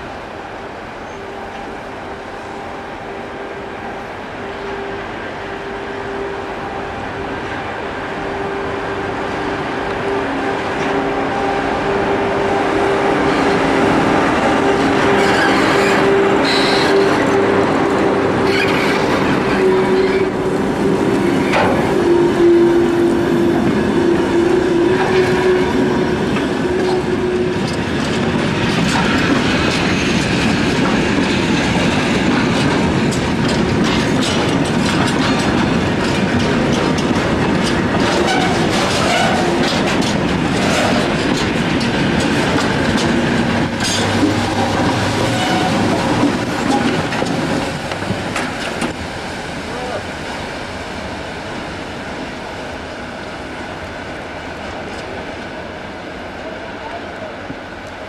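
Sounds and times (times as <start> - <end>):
freight train passing: 0.0 - 58.0
locomotive whine: 0.0 - 58.0
wheels clattering over rail joints: 25.0 - 49.0.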